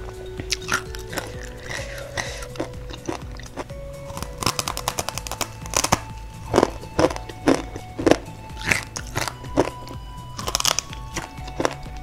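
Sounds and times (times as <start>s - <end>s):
crunchy snack being chewed: 0.5s - 12.0s.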